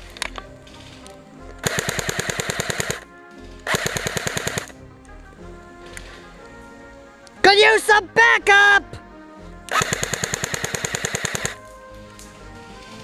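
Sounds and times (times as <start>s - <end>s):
airsoft gun full-auto bursts: 1.6s - 4.8s, 9.7s - 11.6s.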